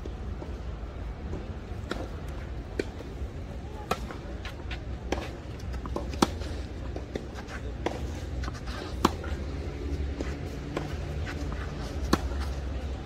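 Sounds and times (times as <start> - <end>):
racket hitting ball: 3.8 - 13.0.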